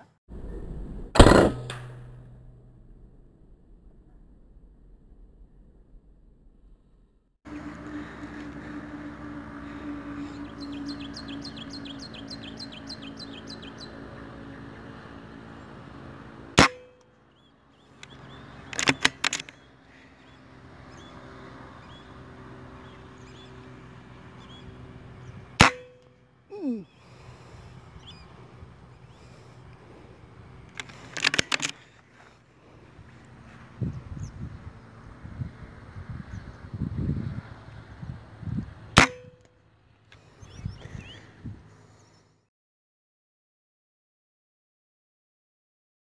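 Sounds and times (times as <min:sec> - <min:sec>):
rifle shots: 0:01.2 - 0:04.3
small bird chirping: 0:10.2 - 0:14.0
sharp metallic clicks: 0:18.0 - 0:19.7, 0:30.7 - 0:31.8.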